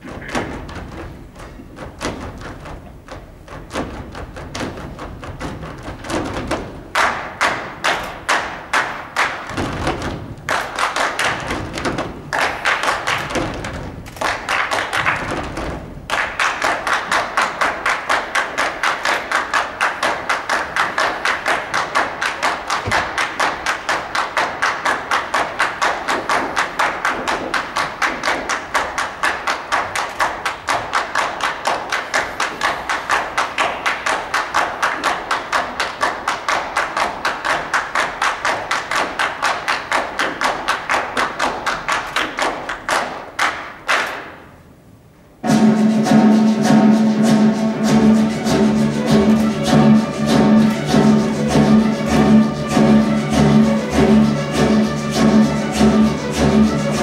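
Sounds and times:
sharp percussive strikes: 0:45.4 - 0:57.0.

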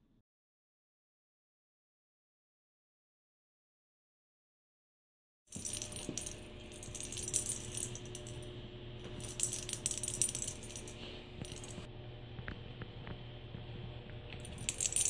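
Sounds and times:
jingle ball bell rattling: 0:05.5 - 0:08.5, 0:09.2 - 0:11.9, 0:14.4 - 0:15.0.

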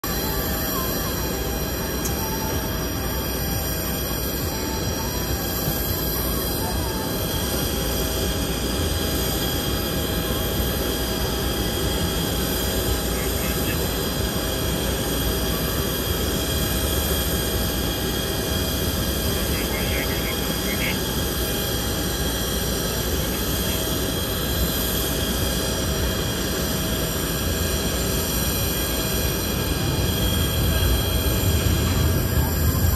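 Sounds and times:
jet turbine whine: 0:00.0 - 0:32.9
low machinery rumble: 0:28.8 - 0:32.9.

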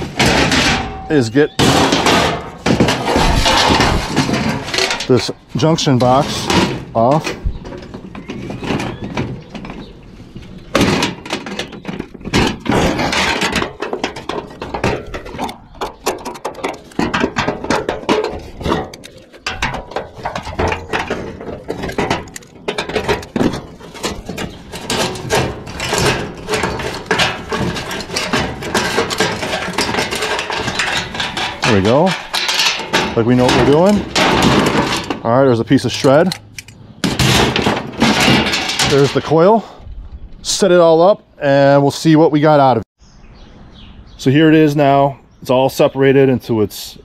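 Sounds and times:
aluminum panel rattling: 0:00.0 - 0:39.6
hand tool metallic clicks: 0:36.3 - 0:36.8.

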